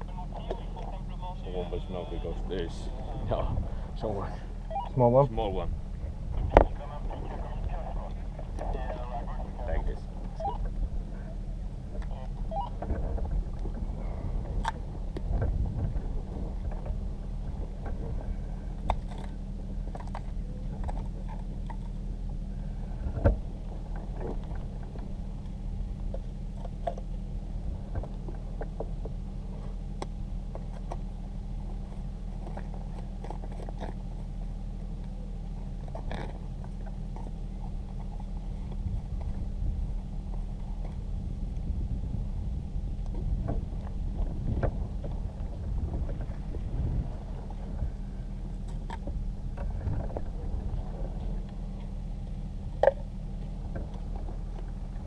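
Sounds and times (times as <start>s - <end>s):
low mechanical hum: 0.0s - 55.0s
handling clicks and scrapes: 28.0s - 39.5s.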